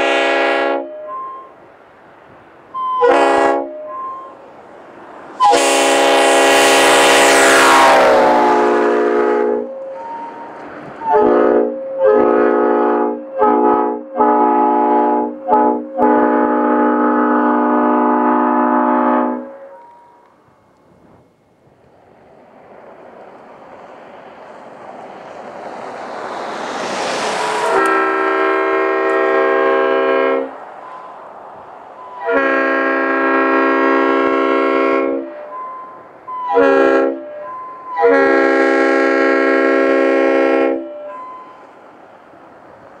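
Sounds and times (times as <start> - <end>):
locomotive air horn blasts: 0.0 - 1.6, 2.7 - 4.4, 5.4 - 20.2, 27.2 - 31.0, 32.0 - 41.7
car driving past: 21.9 - 34.4.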